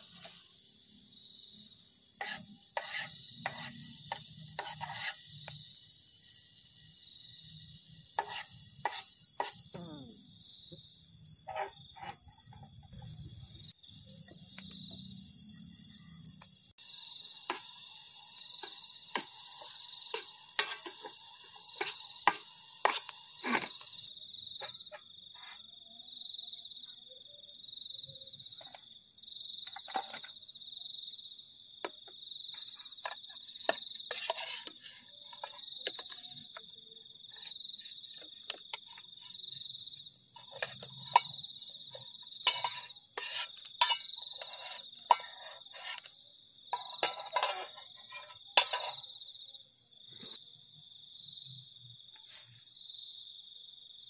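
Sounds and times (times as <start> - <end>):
crickets chirring: 0.0 - 54.0
utensils scraping cookpot: 2.2 - 5.5, 8.1 - 9.7, 11.4 - 12.7, 18.6 - 23.9, 33.0 - 36.2, 40.4 - 41.4, 42.3 - 49.0.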